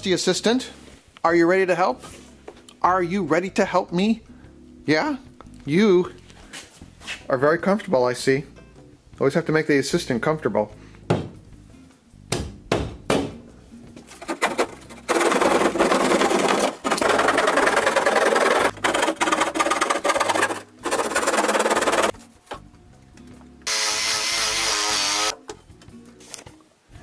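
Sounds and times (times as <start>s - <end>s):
panel scraping and creaking: 14.0s - 22.2s
blade sawing through drywall: 14.2s - 22.1s.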